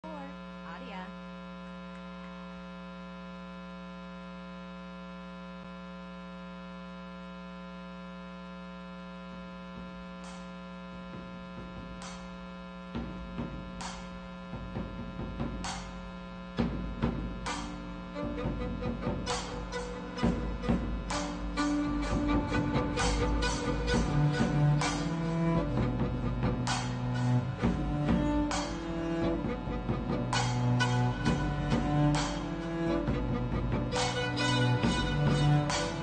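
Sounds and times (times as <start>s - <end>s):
electrical mains hum: 0.0s - 36.0s
faint music with struck hits: 9.8s - 36.0s
low drum rumble: 16.6s - 36.0s.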